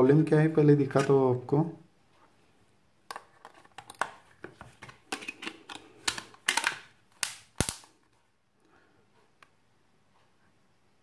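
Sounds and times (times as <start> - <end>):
plastic phone parts clicking: 3.1 - 7.9.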